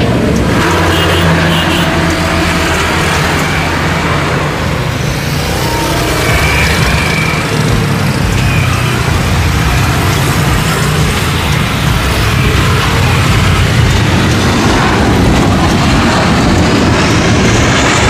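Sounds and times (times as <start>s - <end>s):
jet airliner engines rumbling: 0.0s - 18.0s.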